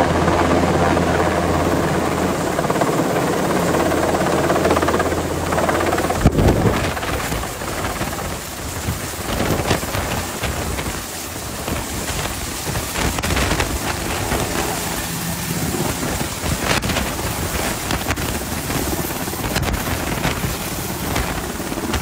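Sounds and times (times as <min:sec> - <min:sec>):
helicopter hovering: 0:00.0 - 0:22.0
rotor downwash rushing: 0:09.2 - 0:22.0.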